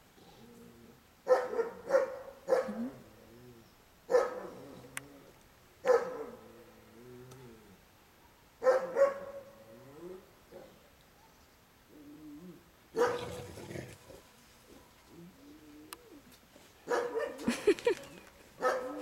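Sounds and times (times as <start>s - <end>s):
large dogs barking: 1.2s - 2.9s, 4.1s - 4.8s, 5.8s - 6.5s, 8.6s - 9.5s, 12.9s - 14.3s, 16.8s - 17.5s, 18.6s - 19.0s
dog growling: 12.4s - 14.2s.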